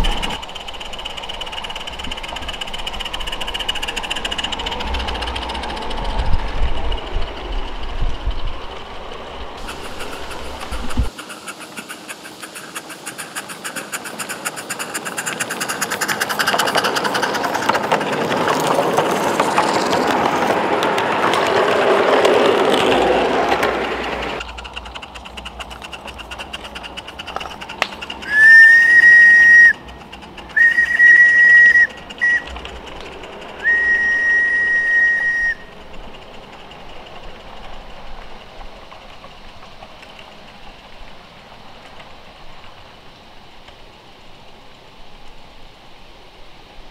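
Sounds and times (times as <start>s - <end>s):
train chuffing: 0.0s - 43.0s
steam locomotive running on track: 0.0s - 46.9s
steam whistle blasts: 28.2s - 29.8s, 30.5s - 32.5s, 33.6s - 35.7s.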